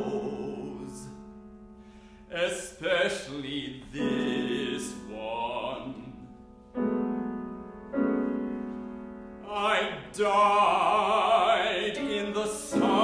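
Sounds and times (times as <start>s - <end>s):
man singing with vibrato: 0.0s - 1.4s, 2.3s - 6.4s, 9.4s - 13.0s
piano chords: 0.0s - 13.0s.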